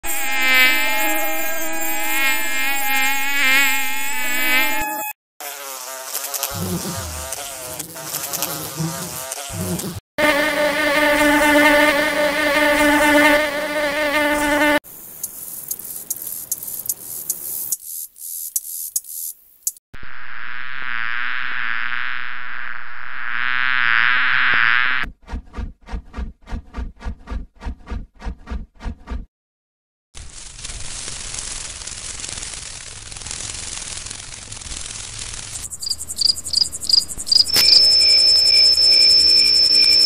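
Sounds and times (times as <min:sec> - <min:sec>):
honey bee buzz: 0:00.0 - 0:14.8, 0:20.0 - 0:25.1, 0:35.2 - 0:40.0
mosquito whining buzz: 0:00.0 - 0:14.8, 0:20.0 - 0:25.0, 0:35.7 - 0:40.0
housefly buzz: 0:00.0 - 0:19.3, 0:20.0 - 0:25.1, 0:33.2 - 0:40.0
steady insect buzzing: 0:00.0 - 0:25.0, 0:31.3 - 0:40.0.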